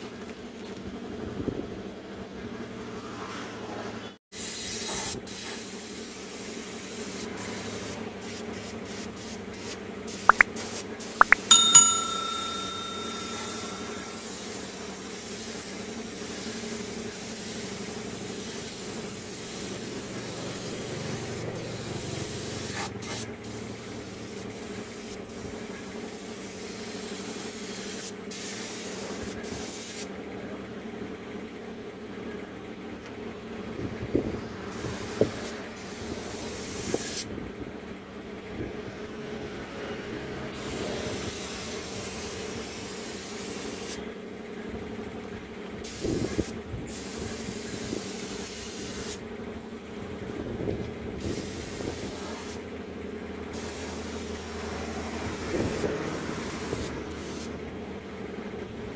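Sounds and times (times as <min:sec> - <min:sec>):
paint spray gun hissing: 0:04.4 - 0:11.2, 0:14.1 - 0:20.9, 0:51.3 - 0:52.6, 0:53.6 - 0:54.5
bell-like ding: 0:11.2 - 0:14.5.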